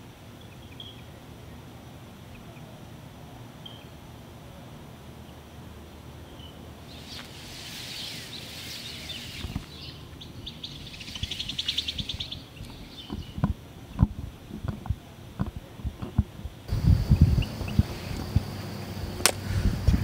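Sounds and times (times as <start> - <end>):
high chirping and trilling: 6.4 - 13.4
footsteps: 6.9 - 9.8.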